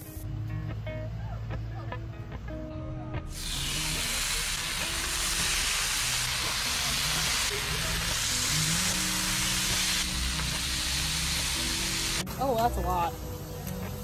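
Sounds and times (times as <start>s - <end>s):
background music: 0.0s - 14.0s
meat sizzling on a griddle: 3.3s - 14.0s.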